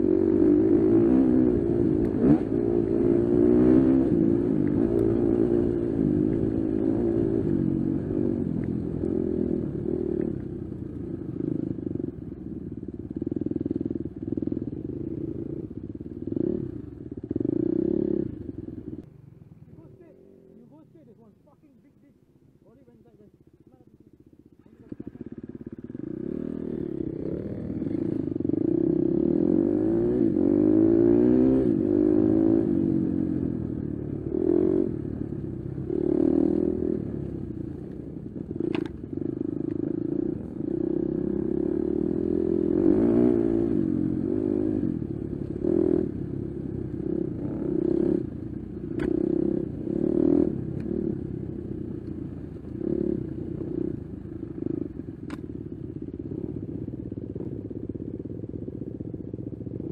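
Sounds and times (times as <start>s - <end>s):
dirt bike engine revving: 0.0s - 10.3s, 24.5s - 33.5s, 35.8s - 37.7s, 39.9s - 48.3s, 48.9s - 51.6s.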